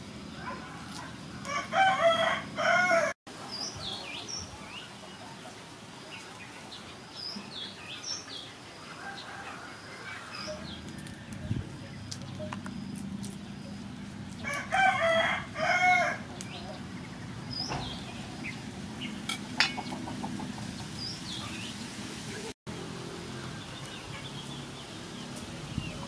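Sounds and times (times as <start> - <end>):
rooster crowing: 0.4 - 3.2, 8.9 - 11.2, 14.4 - 16.3
small birds chirping: 16.2 - 22.5, 23.3 - 26.0.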